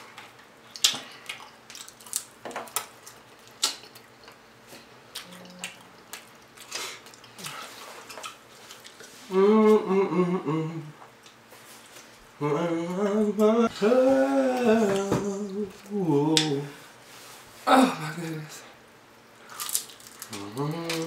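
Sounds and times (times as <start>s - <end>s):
crunching and wet chewing: 0.2s - 9.2s, 19.4s - 20.6s
person humming: 9.2s - 11.1s, 12.4s - 16.9s, 17.7s - 18.7s, 20.3s - 21.0s.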